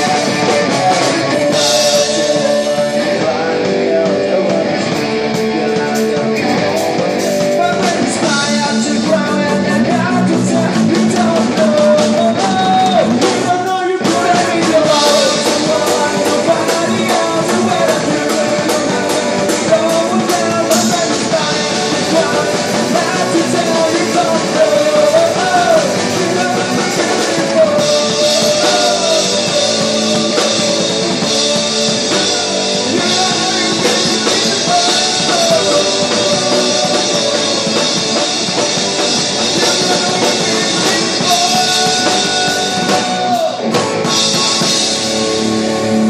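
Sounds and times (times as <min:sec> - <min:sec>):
live rock band playing: 0:00.0 - 0:46.0
person singing: 0:00.0 - 0:46.0.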